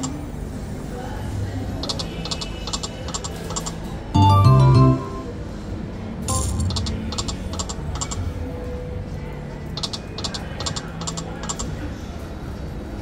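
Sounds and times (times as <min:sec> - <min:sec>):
sharp electronic clicks: 0:01.8 - 0:03.8, 0:06.3 - 0:08.2, 0:09.8 - 0:11.7
electronic jingle: 0:04.2 - 0:05.4, 0:06.3 - 0:06.7.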